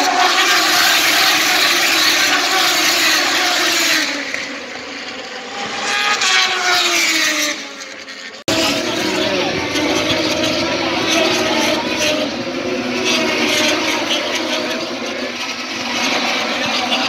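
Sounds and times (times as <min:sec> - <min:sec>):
race motorcycles passing: 0:00.0 - 0:17.0.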